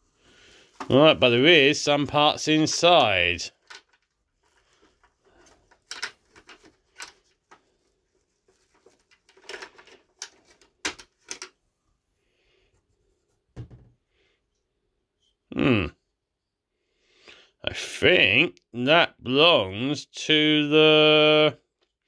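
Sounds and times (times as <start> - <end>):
plastic toy parts rummaged: 2.0 - 11.6.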